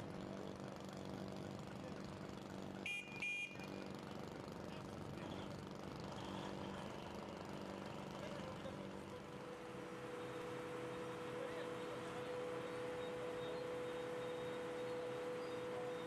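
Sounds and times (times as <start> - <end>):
diesel engine running: 3.6 - 16.0.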